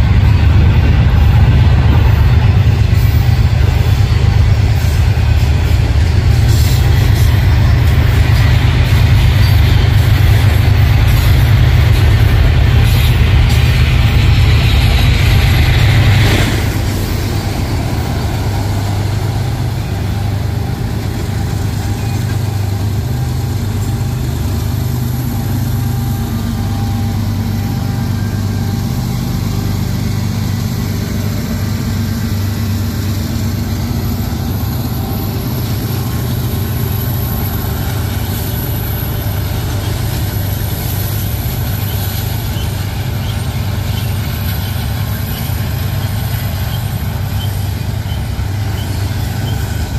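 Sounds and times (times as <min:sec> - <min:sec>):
diesel locomotive engine drone: 0:00.0 - 0:49.9
train rolling: 0:00.0 - 0:49.9.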